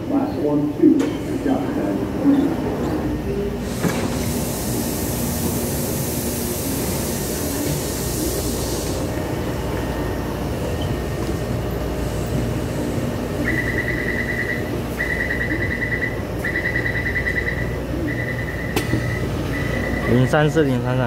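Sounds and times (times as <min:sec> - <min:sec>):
metro platform background noise: 0:00.0 - 0:21.0
train door warning beeps: 0:02.3 - 0:11.4, 0:13.0 - 0:20.7.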